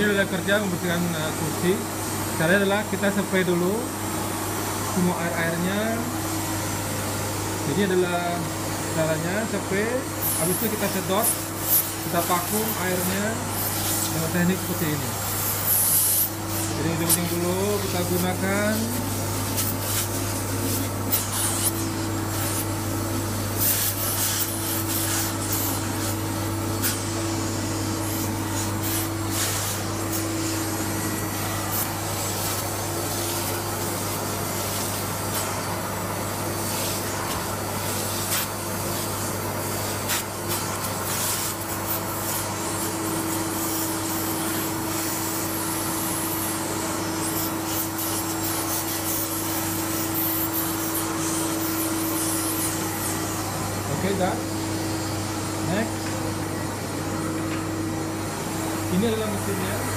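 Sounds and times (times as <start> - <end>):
wand spraying and vacuuming water: 8.4 - 55.9
short hissing spurts: 10.2 - 22.8, 23.4 - 26.2, 26.8 - 35.6, 47.2 - 53.4
extraction machine hum: 50.9 - 59.9.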